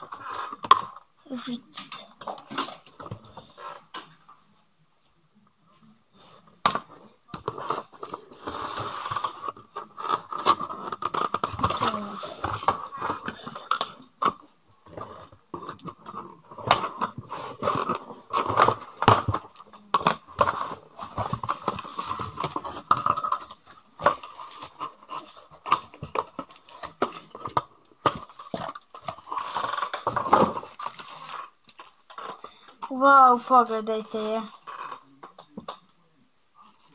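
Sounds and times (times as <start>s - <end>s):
cardboard packaging crunching: 16.4s - 32.6s.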